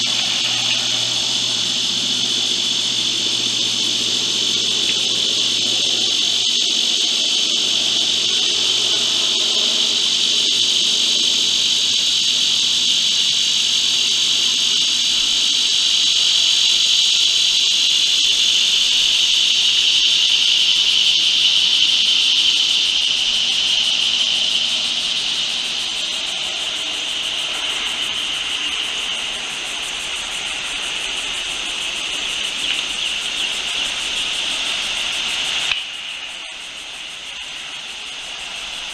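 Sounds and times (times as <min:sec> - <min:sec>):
insects buzzing: 0:00.0 - 0:38.9.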